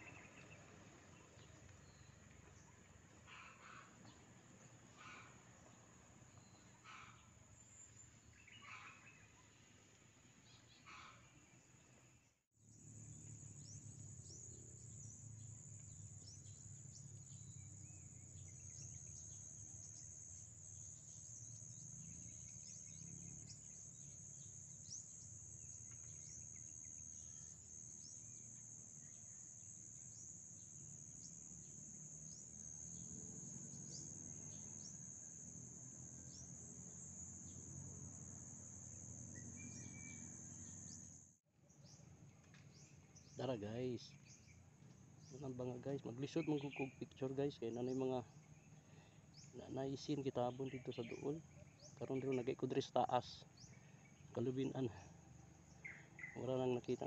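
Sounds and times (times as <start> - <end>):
insects droning: 0.0 - 57.0.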